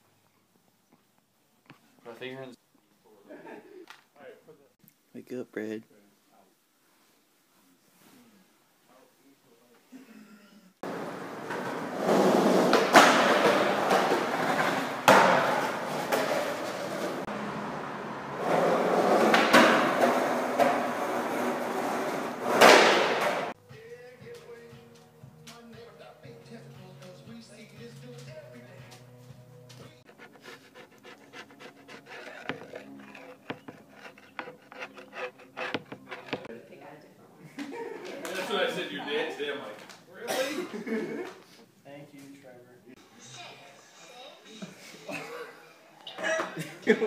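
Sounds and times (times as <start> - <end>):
skateboard wheels rolling: 10.8 - 23.6, 30.2 - 36.5
skateboard clacks: 10.9 - 17.2, 18.4 - 23.5
metal blade scraping wood: 30.1 - 36.5.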